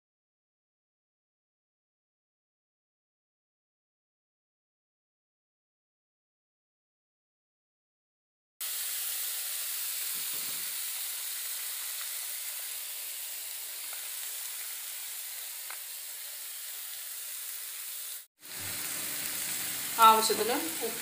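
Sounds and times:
beans sizzling in frying pan: 8.6s - 21.0s.

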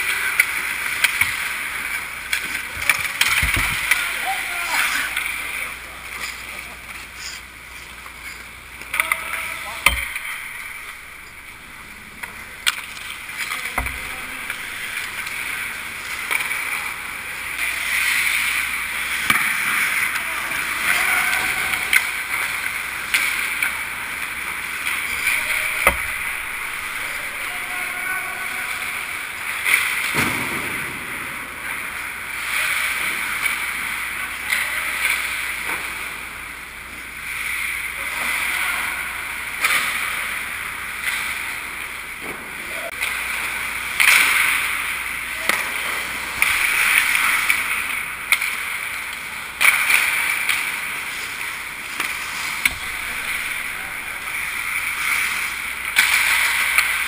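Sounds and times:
hockey stick and puck knocks: 9.8s - 15.6s, 25.1s - 27.7s.

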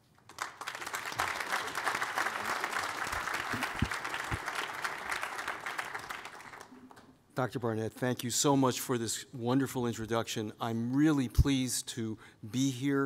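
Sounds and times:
audience applauding: 0.1s - 7.2s.

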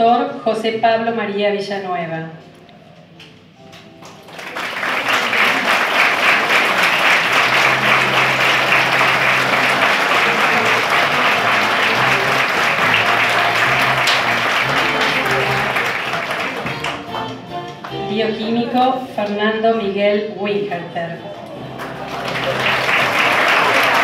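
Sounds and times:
audience applauding: 4.0s - 17.4s, 21.7s - 24.0s.

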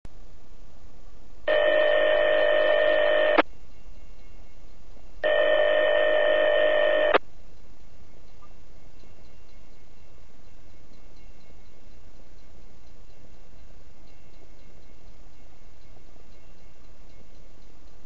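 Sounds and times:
radio static hiss: 1.5s - 3.4s, 5.2s - 7.2s
steady electronic tones: 1.5s - 3.4s, 5.2s - 7.2s.

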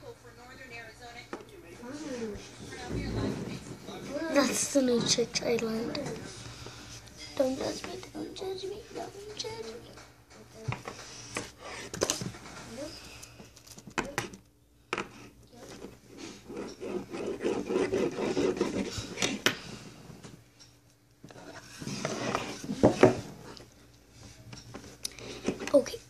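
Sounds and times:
metal toy scraping on tabletop: 21.4s - 23.4s.

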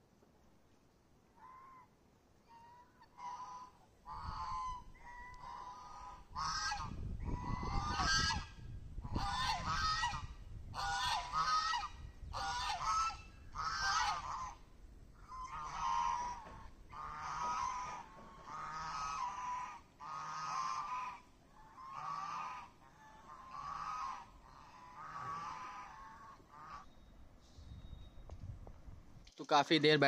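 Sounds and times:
geese honking: 1.4s - 27.0s.

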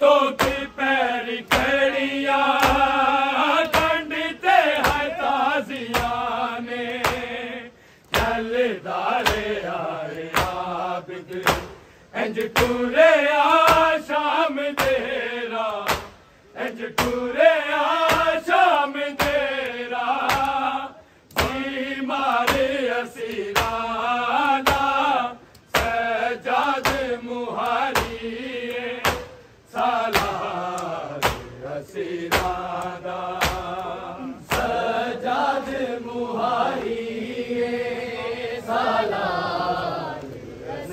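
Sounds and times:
men chanting a lament: 0.0s - 40.9s
sharp rhythmic strikes: 0.3s - 8.6s, 21.3s - 35.7s.

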